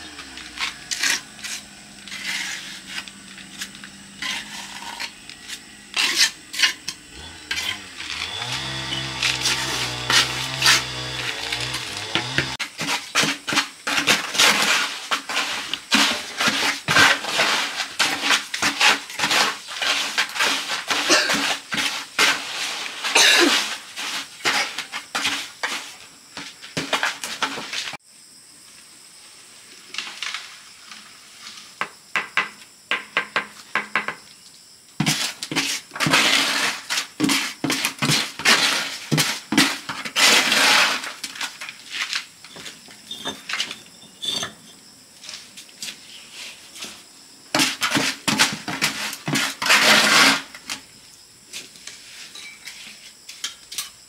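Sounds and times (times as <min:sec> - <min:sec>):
metal tool scraping brick and mortar: 0:00.0 - 0:08.3, 0:08.9 - 0:22.5, 0:47.6 - 0:50.6.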